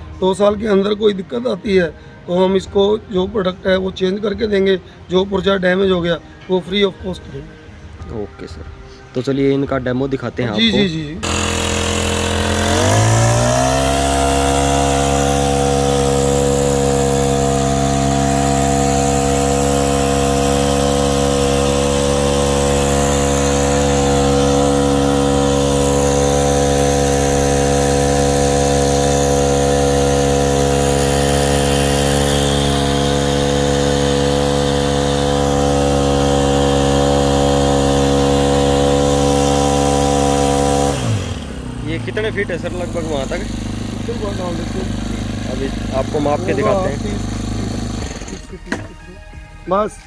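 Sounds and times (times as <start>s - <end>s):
small petrol engine running: 10.7s - 49.0s
spray jet: 11.2s - 41.5s, 42.1s - 48.6s.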